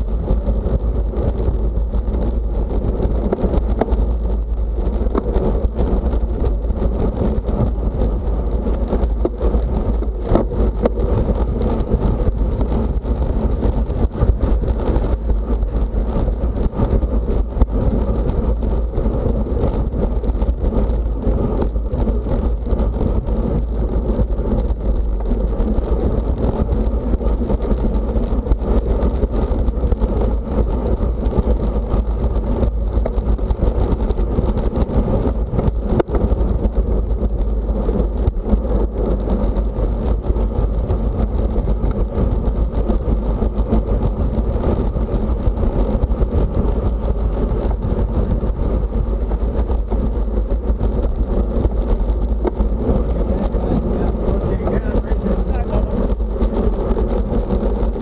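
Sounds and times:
wind rush on microphone: 0.0s - 58.0s.

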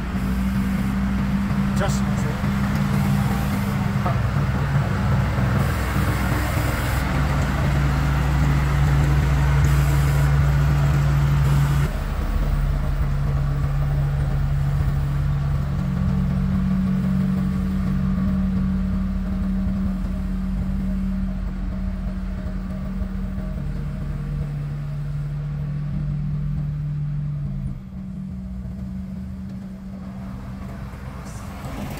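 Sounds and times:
road roller diesel engines droning: 0.0s - 31.9s.

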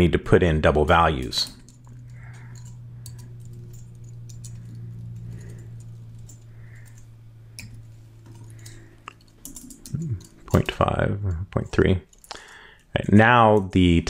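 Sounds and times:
steady low hum: 0.0s - 14.0s
keyboard typing clicks: 1.4s - 10.7s.

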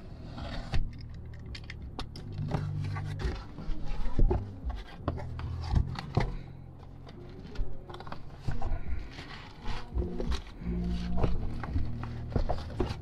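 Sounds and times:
cardboard scraping and rustling: 7.2s - 13.0s.

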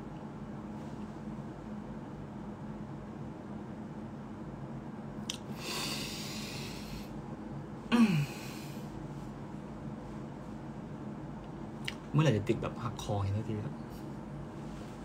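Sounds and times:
man breathing out: 5.5s - 7.1s, 7.9s - 8.9s.

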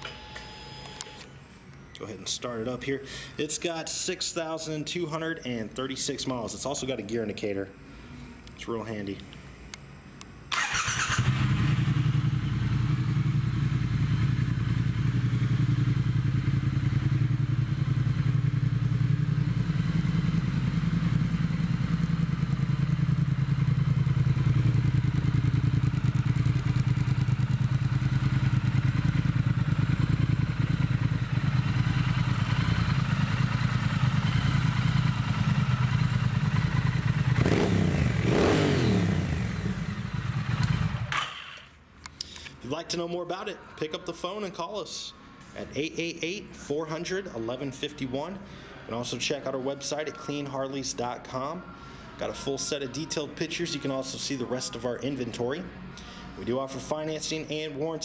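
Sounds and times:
motorcycle engine idling and revving: 10.6s - 41.6s.

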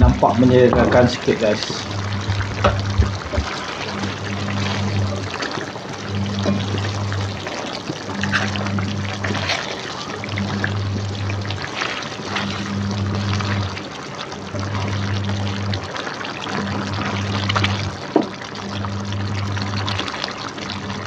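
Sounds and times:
sauce bubbling in wok: 0.0s - 21.0s
spatula stirring: 0.7s - 14.1s.

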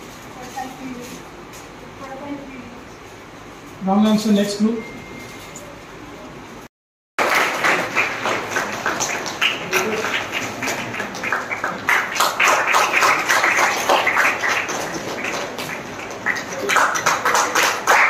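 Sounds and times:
audience clapping: 7.2s - 18.0s.

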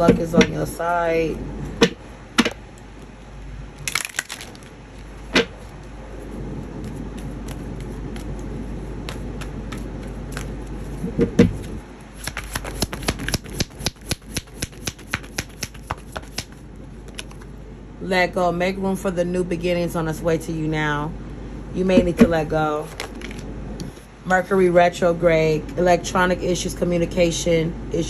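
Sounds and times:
cards being shuffled: 4.0s - 17.5s, 22.9s - 23.5s.

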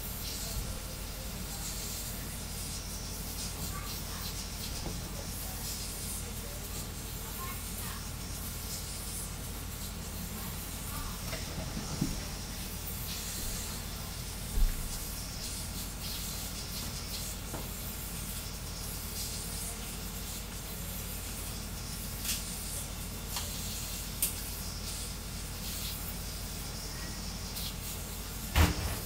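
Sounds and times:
printer fans hissing: 0.0s - 29.0s
short low thump: 28.6s - 29.0s.

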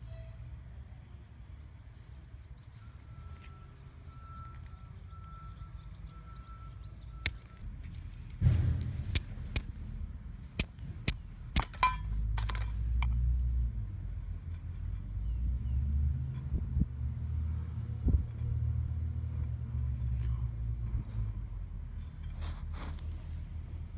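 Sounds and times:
low rumble: 7.7s - 14.5s
fire striker clicking on flint: 10.6s - 12.6s.

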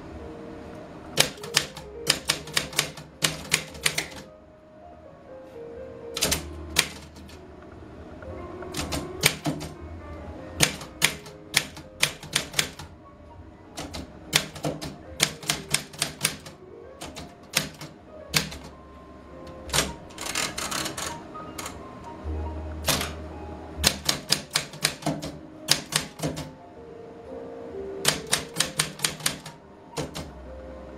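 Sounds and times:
background music: 0.0s - 30.9s
typewriter key clacks: 1.2s - 4.3s, 6.2s - 7.4s, 8.7s - 9.8s, 10.6s - 12.9s, 13.8s - 18.7s, 19.6s - 21.8s, 22.8s - 23.2s, 23.8s - 26.5s, 28.0s - 30.3s.

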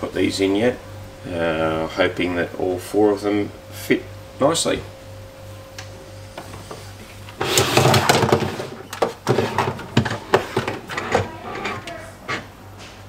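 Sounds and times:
sharp knocks and clatters: 7.4s - 11.4s
scraping rustle: 7.4s - 12.5s.

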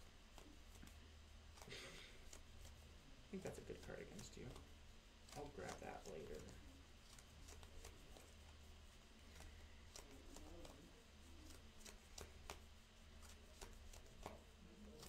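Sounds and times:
low steady hum: 0.0s - 15.0s
cards clicking and rustling: 9.4s - 12.6s.

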